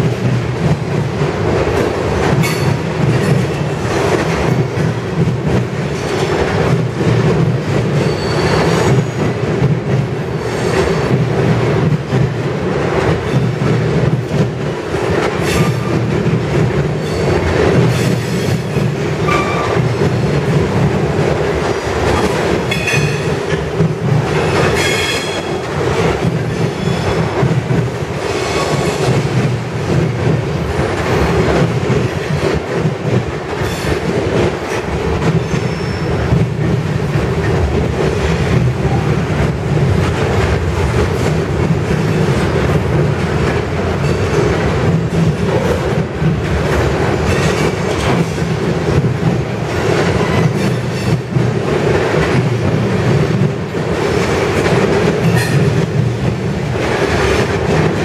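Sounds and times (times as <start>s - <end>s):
steel wheels rumbling on rail: 0.0s - 58.0s
high wheel squeals: 8.0s - 8.9s.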